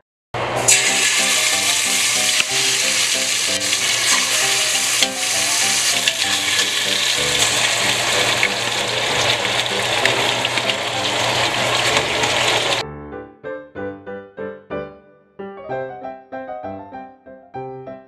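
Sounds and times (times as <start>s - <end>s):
chicken sizzling in oil: 0.4s - 12.8s
soft piano music: 0.4s - 18.0s.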